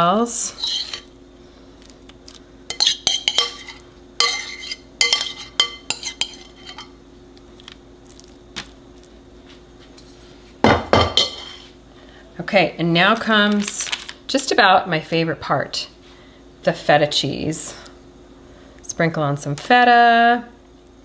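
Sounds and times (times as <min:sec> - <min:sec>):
utensil scraping a bowl: 0:00.3 - 0:01.1, 0:02.7 - 0:06.9.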